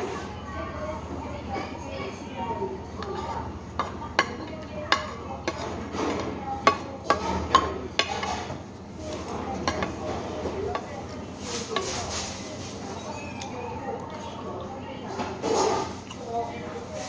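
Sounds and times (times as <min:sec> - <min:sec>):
chopsticks and spoon clinking on bowl: 0:09.5 - 0:11.1.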